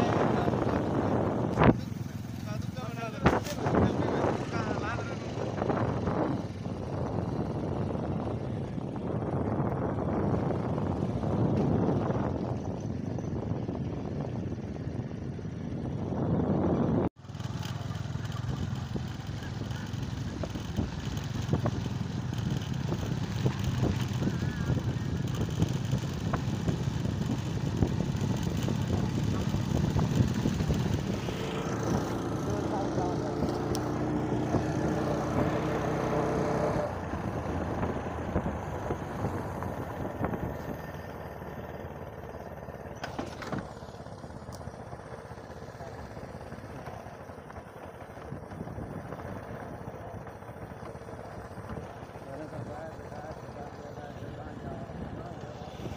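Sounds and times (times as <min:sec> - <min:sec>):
wind buffeting microphone: 0:00.0 - 0:17.1, 0:18.2 - 0:41.4
motorcycle engine rumble: 0:00.0 - 0:55.9.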